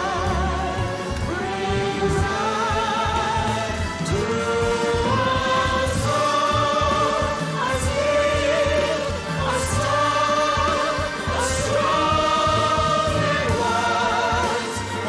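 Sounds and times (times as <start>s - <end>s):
song with vibrato vocals: 0.0s - 15.0s.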